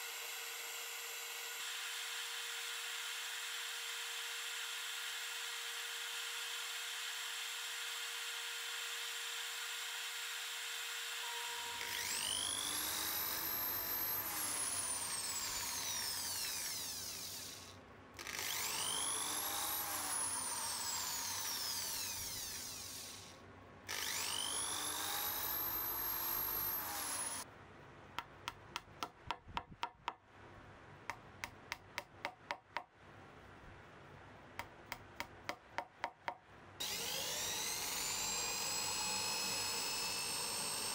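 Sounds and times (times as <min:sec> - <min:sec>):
drill spinning up and down: 0:00.0 - 0:27.4, 0:36.8 - 0:40.9.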